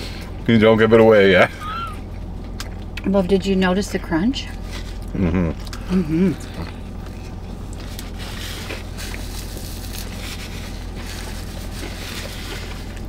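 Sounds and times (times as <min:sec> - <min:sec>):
low rumble inside car: 0:00.0 - 0:13.0
crunching and chewing food: 0:01.5 - 0:03.1, 0:04.5 - 0:13.0.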